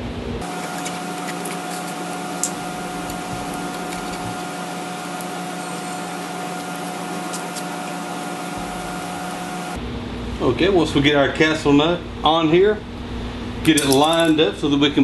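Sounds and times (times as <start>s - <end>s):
machine hum: 0.0s - 10.4s.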